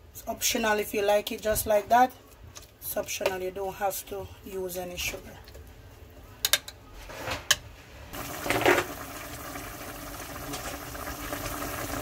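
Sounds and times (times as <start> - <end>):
liquid bubbling at a boil in a pot: 8.2 - 12.0.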